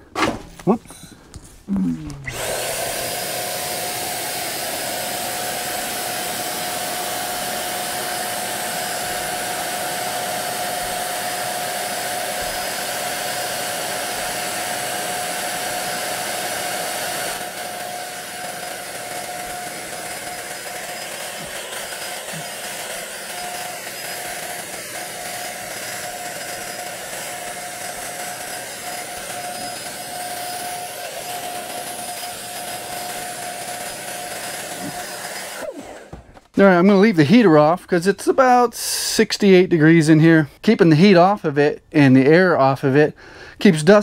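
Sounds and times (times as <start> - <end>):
paint sprayer whining and hissing: 1.4 - 36.6.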